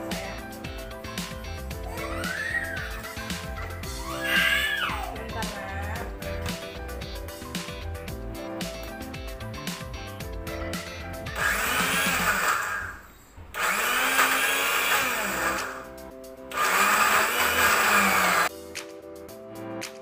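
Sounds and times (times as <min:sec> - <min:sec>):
electric blender running: 0:11.4 - 0:15.9, 0:16.5 - 0:18.5.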